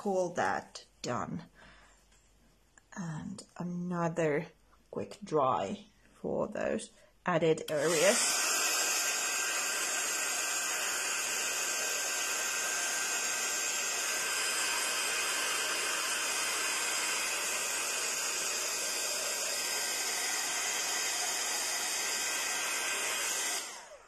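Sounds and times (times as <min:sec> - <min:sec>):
heat tool blowing air: 0:07.7 - 0:24.0.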